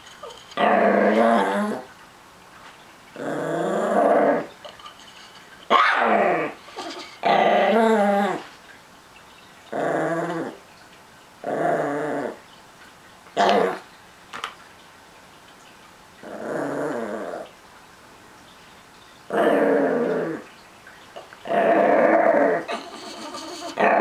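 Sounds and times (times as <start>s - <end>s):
small dog growling: 0.2s - 1.9s, 3.2s - 4.5s, 5.8s - 8.5s, 9.7s - 10.6s, 11.4s - 12.4s, 13.4s - 13.8s, 16.2s - 17.5s, 19.3s - 20.4s, 21.4s - 24.0s.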